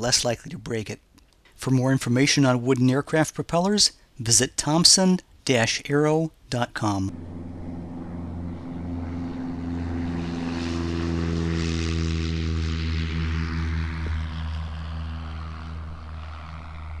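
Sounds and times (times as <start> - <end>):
light aircraft piston engine: 7.1 - 17.0.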